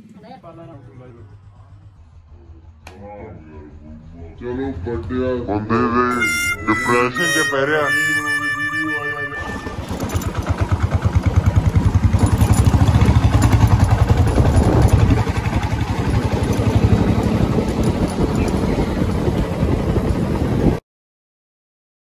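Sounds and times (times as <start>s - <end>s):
motorcycle engine running: 8.1s - 20.8s.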